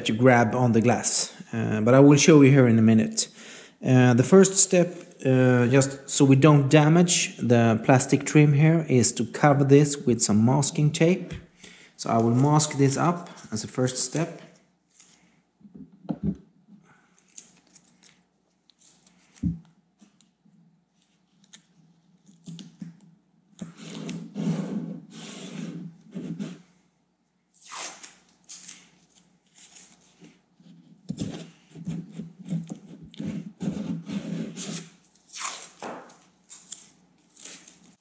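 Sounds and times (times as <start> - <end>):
tape rubbed on plastic: 23.6 - 26.7, 27.6 - 28.9, 29.5 - 35.8
tape peeling off roll: 27.6 - 30.2, 32.0 - 38.0.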